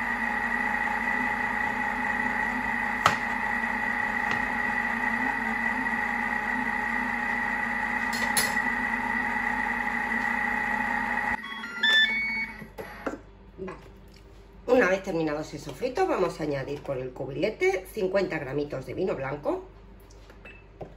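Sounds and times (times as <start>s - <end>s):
food processor motor whining: 0.0s - 13.2s.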